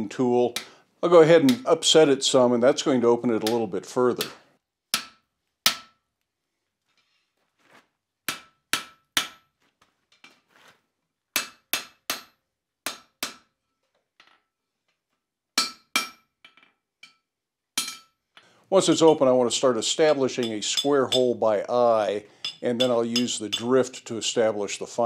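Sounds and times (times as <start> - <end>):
hammer striking steel on anvil: 4.2 - 6.0, 8.3 - 9.5, 11.4 - 13.5, 15.6 - 16.3, 17.8 - 18.2, 20.4 - 21.4, 22.4 - 24.0.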